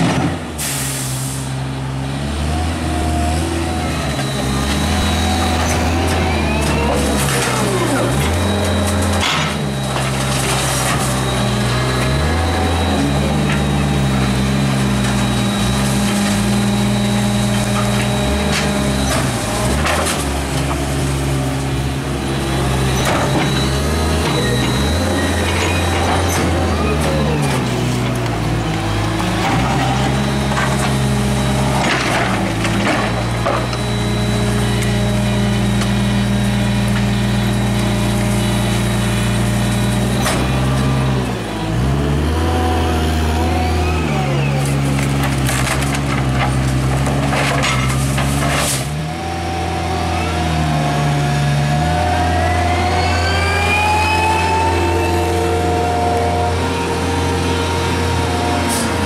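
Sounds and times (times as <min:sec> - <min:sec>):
trash clanking and banging: 0:00.0 - 0:00.6, 0:04.0 - 0:42.2, 0:43.2 - 0:49.2
garbage truck engine: 0:00.0 - 0:59.0.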